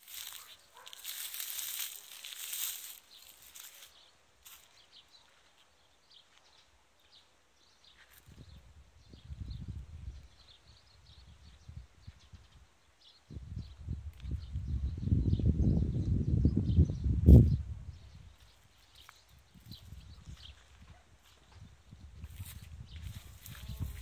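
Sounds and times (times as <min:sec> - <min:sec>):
rustling hiss: 0:00.0 - 0:04.6
low rumbling buffets on microphone: 0:08.3 - 0:12.6, 0:13.3 - 0:18.4, 0:21.5 - 0:24.0.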